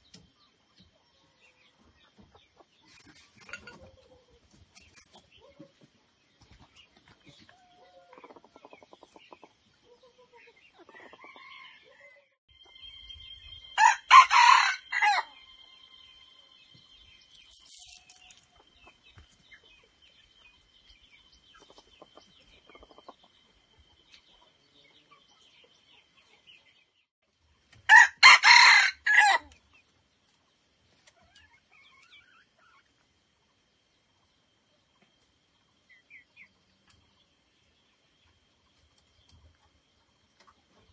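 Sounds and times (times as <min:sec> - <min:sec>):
rooster crowing: 0:11.0 - 0:12.3, 0:13.8 - 0:15.4, 0:27.9 - 0:29.5.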